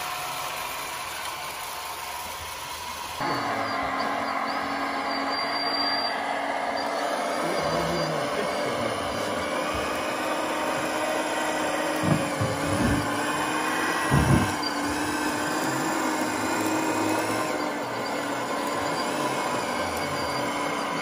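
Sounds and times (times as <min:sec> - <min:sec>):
hydraulic pump whining: 0:00.0 - 0:21.0
low thumps: 0:14.1 - 0:14.6.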